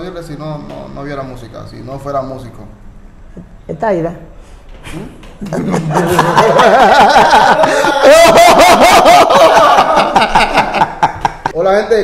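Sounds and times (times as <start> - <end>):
men laughing loudly: 5.5 - 11.6.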